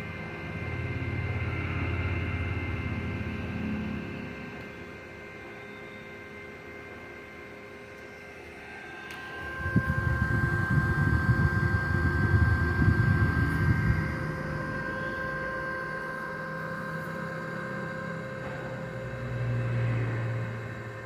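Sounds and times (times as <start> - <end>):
charger cooling fan whining: 0.0 - 21.0
air buffeting microphone: 9.5 - 14.5.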